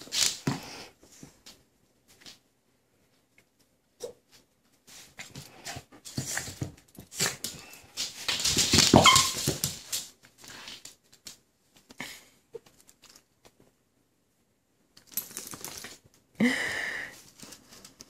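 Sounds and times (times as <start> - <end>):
dogs scuffling and snuffling: 4.3 - 11.4.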